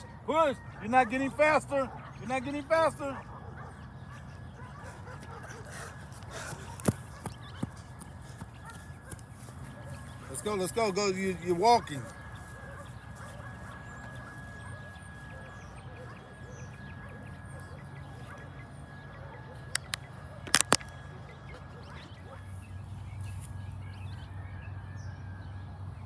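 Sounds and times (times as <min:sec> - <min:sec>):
street traffic hum: 0:00.0 - 0:26.0
sharp clicks: 0:19.7 - 0:21.0.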